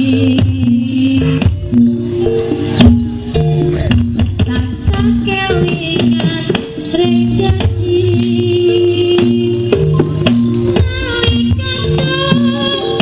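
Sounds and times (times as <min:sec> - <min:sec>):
drum strokes: 0:00.0 - 0:13.0
ensemble melody: 0:01.5 - 0:05.3.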